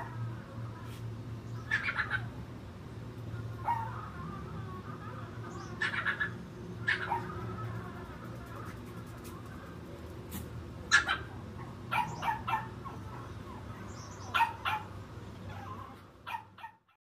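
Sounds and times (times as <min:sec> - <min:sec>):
steady low hum: 0:00.0 - 0:16.9
dog barking: 0:03.6 - 0:04.0, 0:06.9 - 0:07.4, 0:10.9 - 0:13.3, 0:14.3 - 0:15.7, 0:16.3 - 0:17.0.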